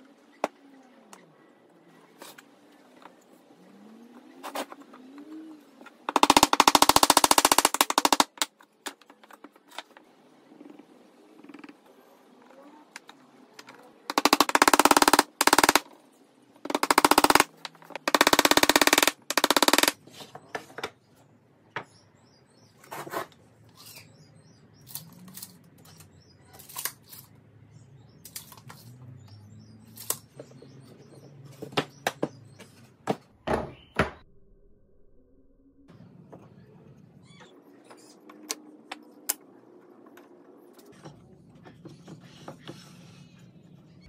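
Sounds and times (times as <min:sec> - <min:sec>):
impact driver driving screws: 0:16.7 - 0:20.0
low hum: 0:34.2 - 0:37.2.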